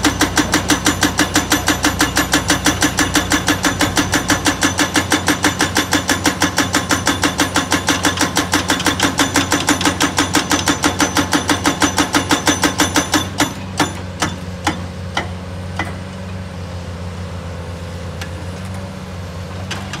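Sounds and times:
hydraulic breaker hammering rock: 0.0s - 16.1s.

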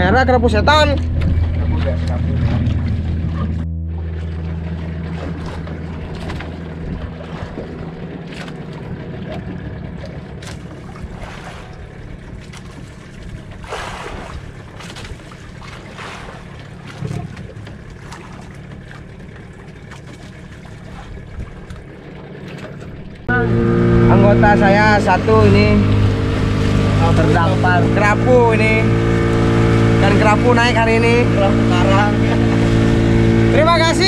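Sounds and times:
steady low hum: 0.0s - 34.0s
sea waves washing: 0.7s - 34.0s
wind on microphone: 5.2s - 8.2s.

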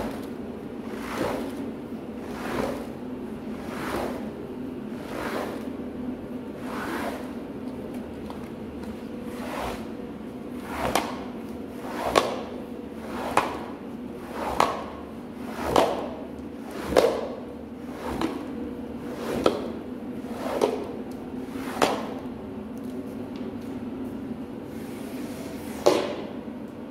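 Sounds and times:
scrub brush swishing on wet carpet: 0.0s - 5.8s, 6.6s - 7.4s, 9.3s - 10.0s, 10.6s - 22.2s
steady low hum: 0.0s - 26.9s.

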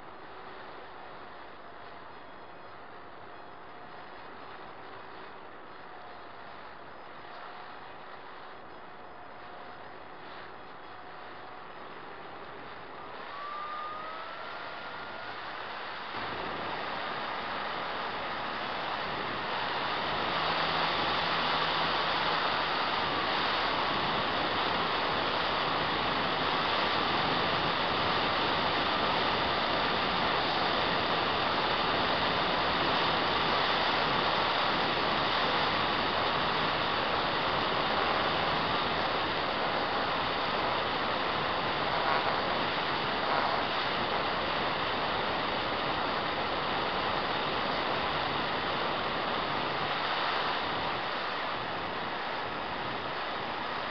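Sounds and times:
electric motor and propeller whine: 0.0s - 53.9s
wind rushing over microphone: 2.8s - 53.9s.

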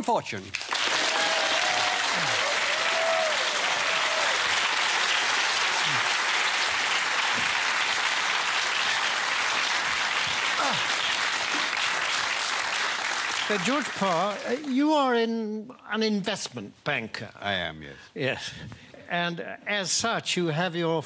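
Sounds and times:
audience applauding: 0.5s - 15.0s.

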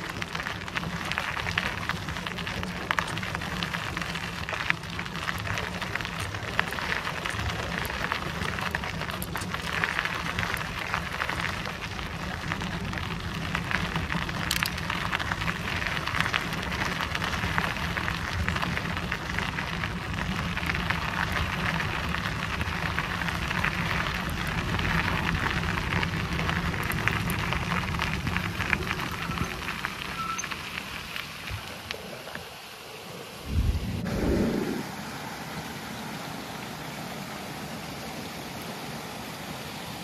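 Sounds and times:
bicycle tyres crunching on trail: 0.0s - 34.8s
wind rumbling on microphone: 33.3s - 35.3s.

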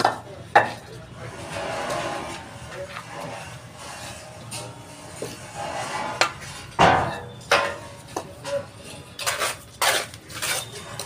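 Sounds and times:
bricks clacking together: 0.0s - 0.8s.

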